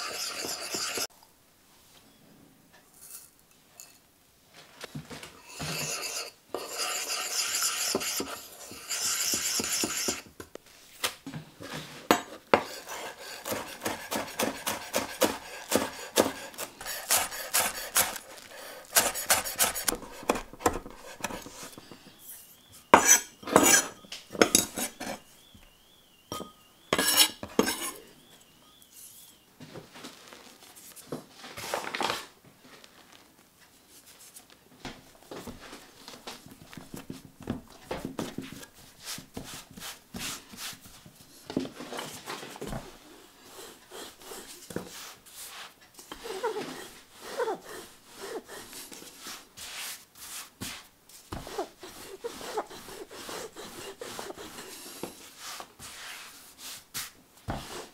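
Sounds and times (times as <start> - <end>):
spoon scraping in a bowl: 0.0 - 1.1, 5.4 - 10.3, 12.1 - 25.3, 26.3 - 28.3, 51.4 - 55.1
knife chopping on wooden board: 13.4 - 18.2, 19.0 - 21.6.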